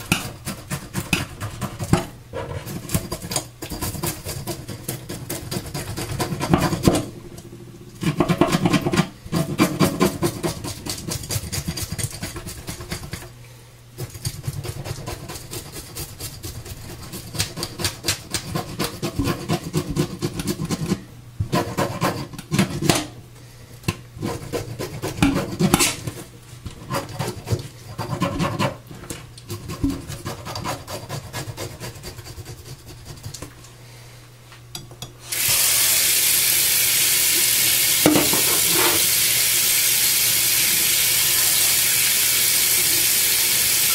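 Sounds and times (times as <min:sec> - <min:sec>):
knife scraping fish scales: 0:00.0 - 0:06.8, 0:08.2 - 0:13.3, 0:14.0 - 0:21.0, 0:24.2 - 0:28.8, 0:29.4 - 0:33.4.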